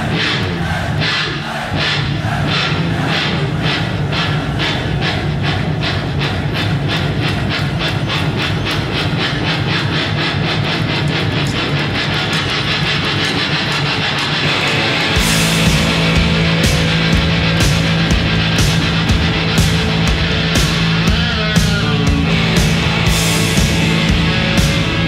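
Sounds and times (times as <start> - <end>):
pulsing beat: 0.0 - 25.0.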